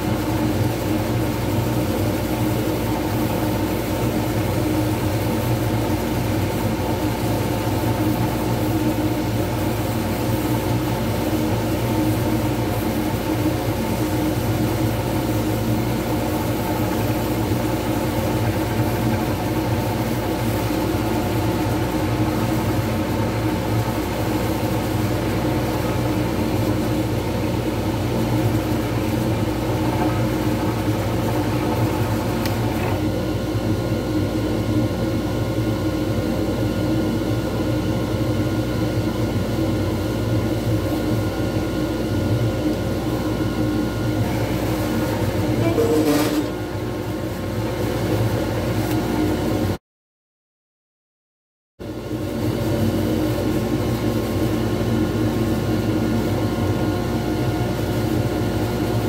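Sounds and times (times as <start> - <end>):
wood lathe humming: 13.8 - 33.0, 44.2 - 47.2.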